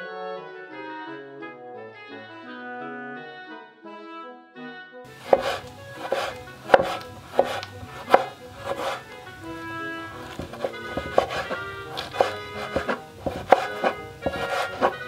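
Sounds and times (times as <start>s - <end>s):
keyboard music: 5.1s - 15.0s
knife chopping on wooden board: 5.2s - 9.2s, 10.1s - 15.0s.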